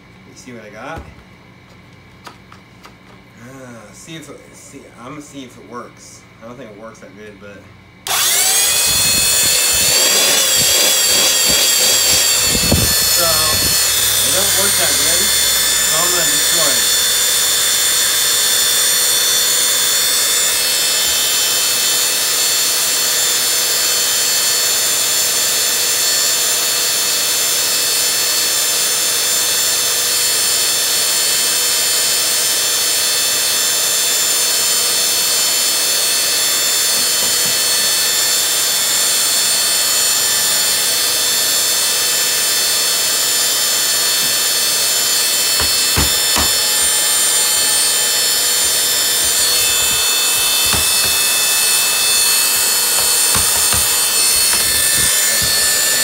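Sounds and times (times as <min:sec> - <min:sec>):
small electric motor whining: 0:08.0 - 0:56.0
sharp knocks: 0:45.6 - 0:46.8, 0:49.2 - 0:56.0.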